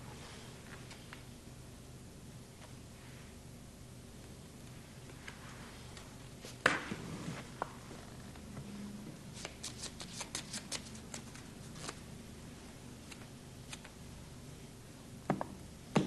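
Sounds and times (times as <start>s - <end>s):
cards shuffling clicks: 9.4s - 12.0s, 13.1s - 14.0s.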